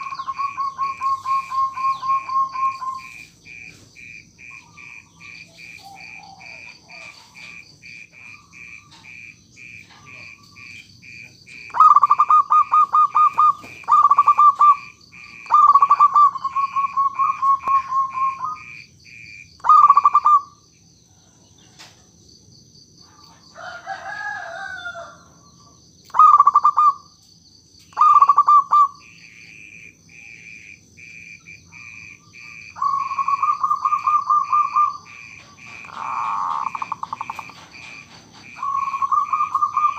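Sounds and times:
dove cooing: 0:00.0 - 0:18.8, 0:19.6 - 0:20.6, 0:26.1 - 0:27.0, 0:28.0 - 0:30.5, 0:31.7 - 0:39.9
insect chirping: 0:00.0 - 0:39.9.

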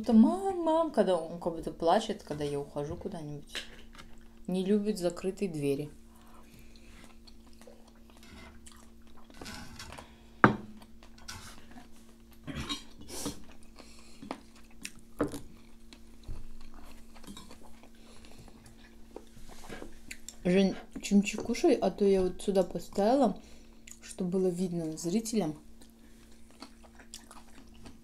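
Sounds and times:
steady low hum: 0:00.0 - 0:28.0
chewing noodles: 0:06.2 - 0:09.4, 0:10.8 - 0:20.4, 0:25.8 - 0:28.0.

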